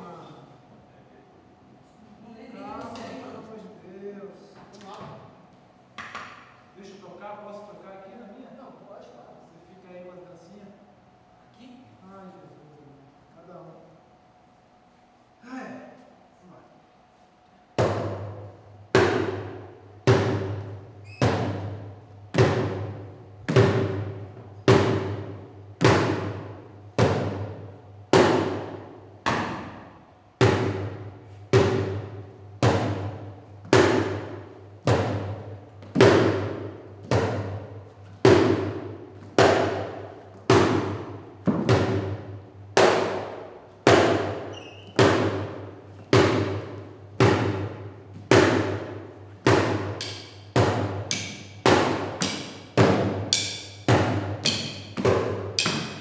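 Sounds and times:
drumsticks beating plastic bucket: 30.4s - 56.0s.

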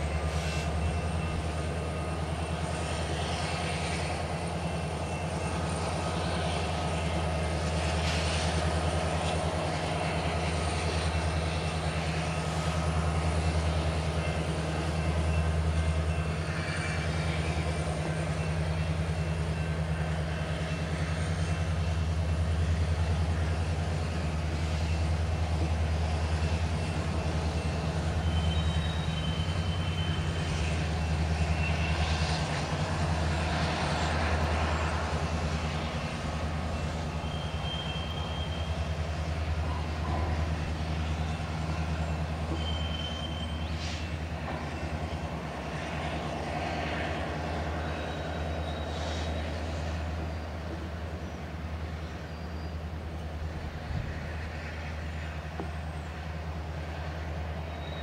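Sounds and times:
diesel locomotive drone: 0.0s - 58.0s
wheel and rail noise: 0.0s - 58.0s
wheel squeals: 26.3s - 34.9s, 35.6s - 45.4s, 47.5s - 53.0s, 57.6s - 58.0s.

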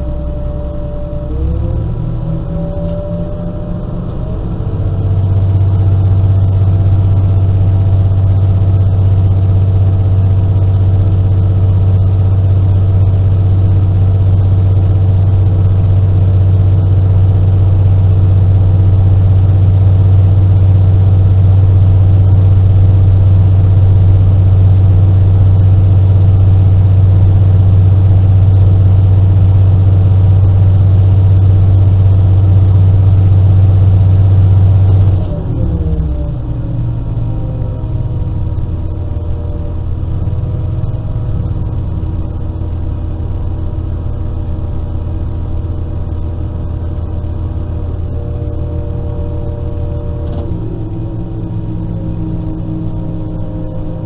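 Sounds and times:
diesel engine humming: 0.0s - 54.0s.

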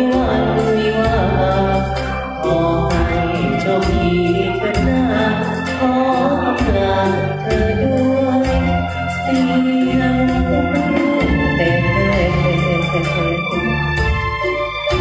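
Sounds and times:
man singing into a microphone: 0.0s - 14.0s
pop ballad over speakers: 0.0s - 15.0s.

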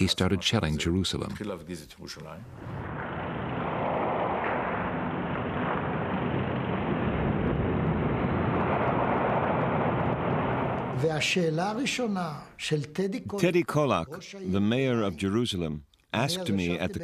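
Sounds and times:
muffled rumbling noise: 2.5s - 11.2s.

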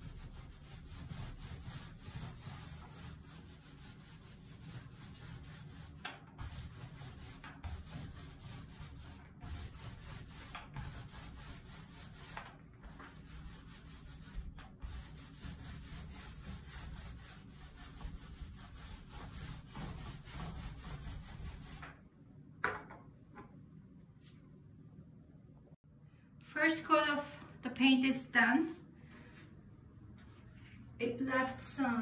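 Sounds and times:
paint applicator rubbing on tile: 0.0s - 21.9s.

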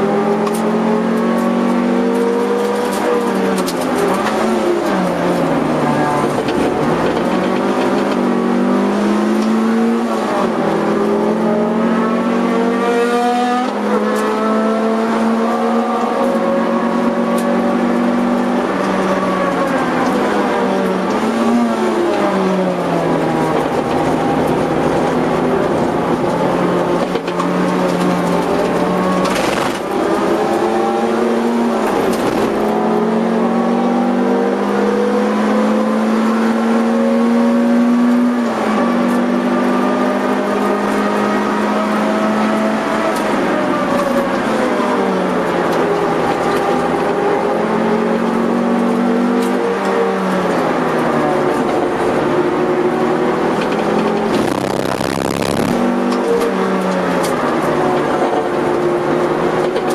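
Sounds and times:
car engine revving: 0.0s - 59.9s.

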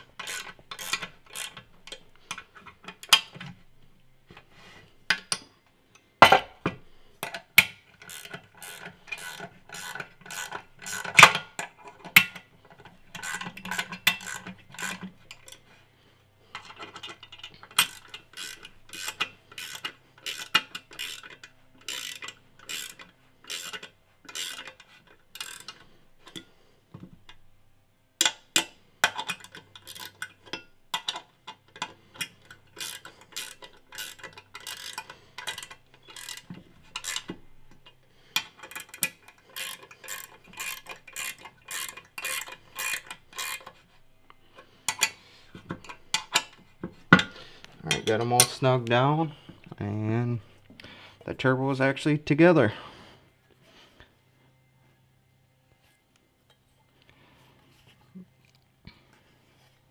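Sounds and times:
ratcheting wrench clicking: 0.0s - 3.3s, 7.2s - 15.6s, 16.5s - 26.4s, 28.2s - 43.8s.

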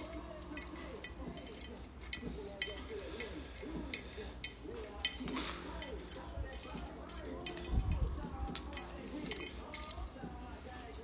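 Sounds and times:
light clinks and clicks of handling: 0.0s - 11.0s.

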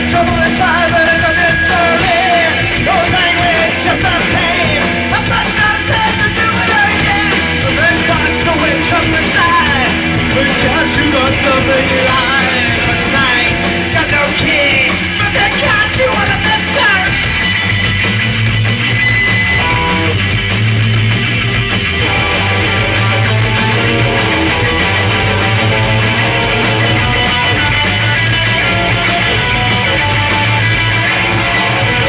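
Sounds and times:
singer yelling: 0.0s - 17.5s
punk rock band playing: 0.0s - 32.0s.

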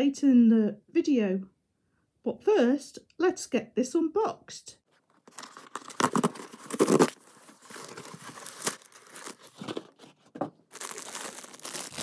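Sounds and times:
cardboard mailer tearing: 5.3s - 12.0s
plastic bag crinkling: 5.3s - 12.0s.

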